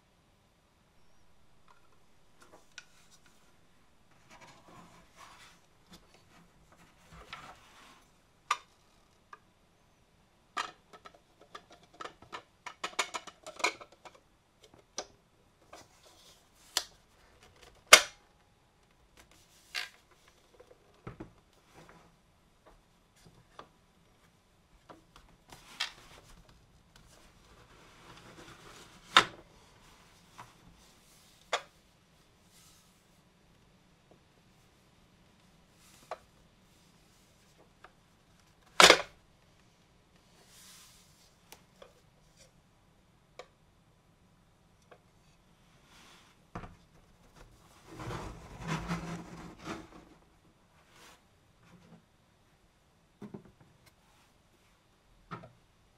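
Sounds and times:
soft rustling: 0:01.7 - 0:09.2, 0:19.2 - 0:38.7, 0:39.4 - 0:42.6
plastic parts clicking and knocking: 0:10.6 - 0:15.8.

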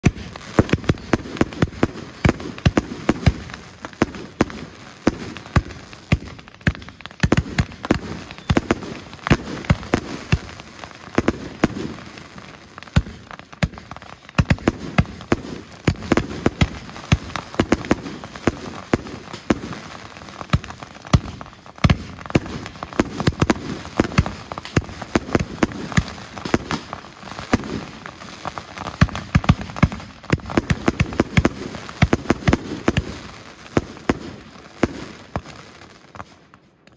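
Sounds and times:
fireworks aerial bursts: 0:00.0 - 0:36.9.

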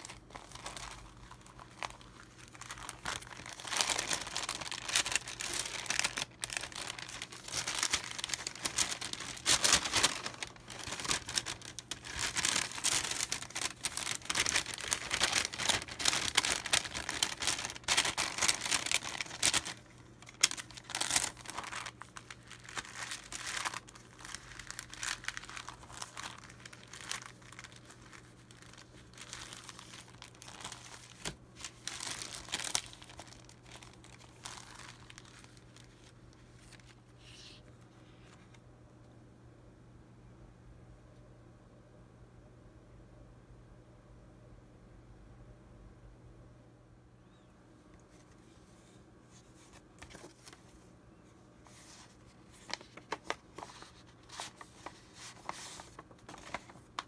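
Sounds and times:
paper bags rustling: 0:00.0 - 0:36.9, 0:51.7 - 0:57.0.

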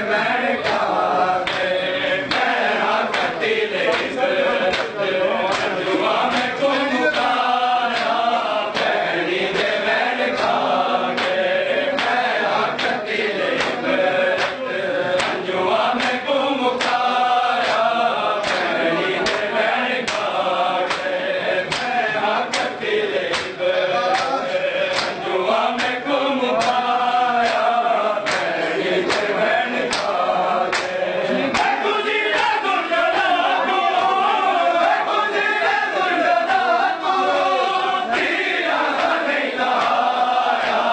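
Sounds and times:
men chanting in unison: 0:00.0 - 0:40.9
hands slapping chest: 0:04.7 - 0:05.7, 0:14.4 - 0:14.6, 0:18.4 - 0:19.5, 0:20.1 - 0:20.3, 0:20.9 - 0:21.1, 0:21.7 - 0:22.7, 0:23.3 - 0:25.2, 0:26.6 - 0:28.5, 0:29.1 - 0:29.3, 0:29.9 - 0:31.8.

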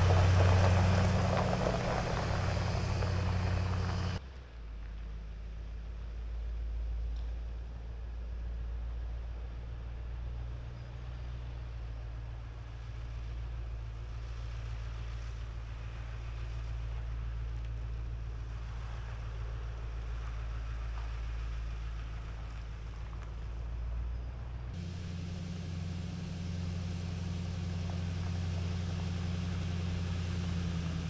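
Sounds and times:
truck engine humming: 0:00.0 - 0:04.2, 0:13.0 - 0:31.0.

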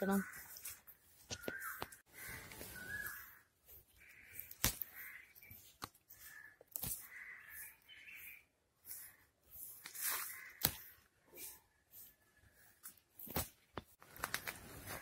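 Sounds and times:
crows cawing: 0:00.0 - 0:08.2, 0:09.9 - 0:11.1.

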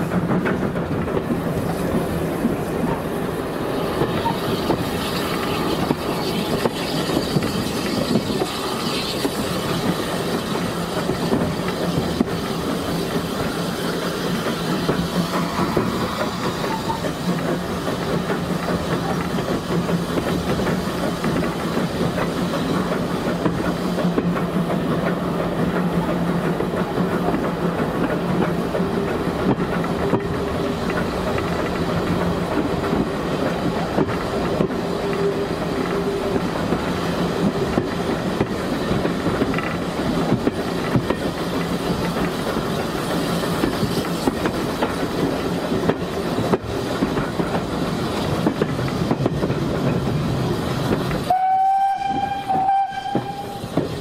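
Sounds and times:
clickety-clack over rail joints: 0:00.0 - 0:54.0
train wheels on rail: 0:00.0 - 0:54.0.

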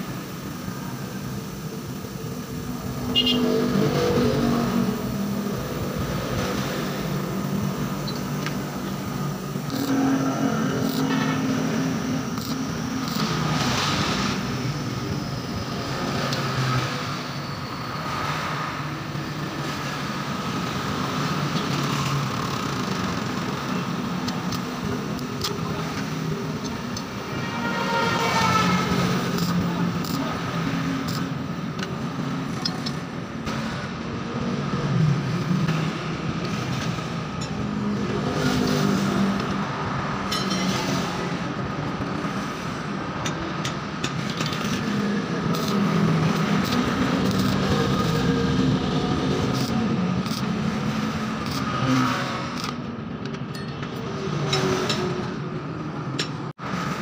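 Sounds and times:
metallic clicks of steel parts: 0:31.0 - 0:33.0, 0:52.5 - 0:55.1
welding crackles: 0:44.4 - 0:52.8.

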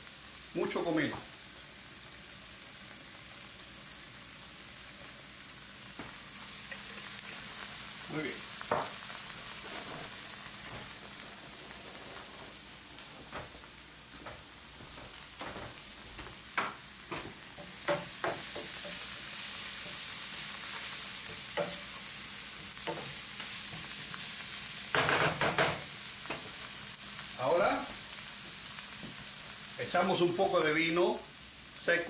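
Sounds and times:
onion sizzling in a frying pan: 0:00.0 - 0:32.0
wooden spoon scraping a pan: 0:08.7 - 0:12.6.

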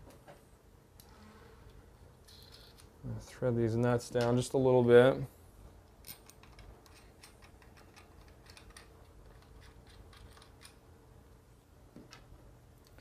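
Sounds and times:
metallic clicks of nuts spinning: 0:02.2 - 0:02.9.

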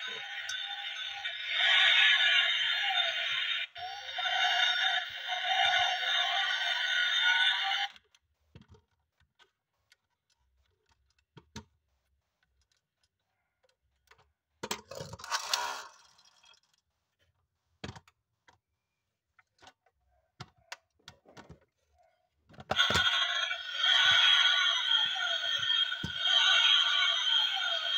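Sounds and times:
loud electronic music-like sound: 0:00.0 - 0:07.9, 0:22.7 - 0:27.9
clicks and taps of toy truck: 0:08.0 - 0:11.7, 0:12.4 - 0:15.0, 0:16.6 - 0:18.7, 0:19.3 - 0:21.7.

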